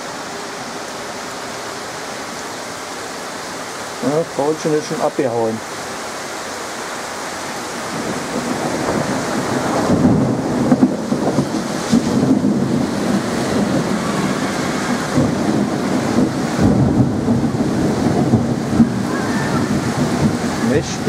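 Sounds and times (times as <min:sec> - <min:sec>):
heavy rain pouring on street: 0:00.0 - 0:21.0
thunder rumbling: 0:07.8 - 0:21.0.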